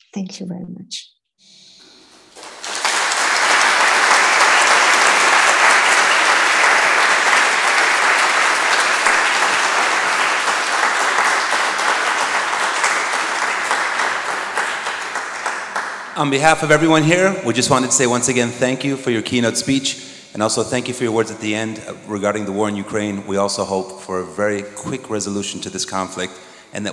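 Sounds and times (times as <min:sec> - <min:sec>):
audience applauding: 0:02.2 - 0:18.8.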